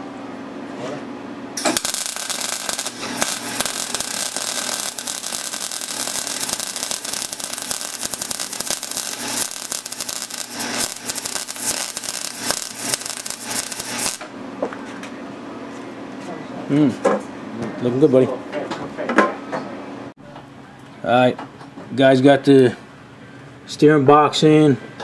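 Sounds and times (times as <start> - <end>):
welder arc crackling: 1.6 - 14.3.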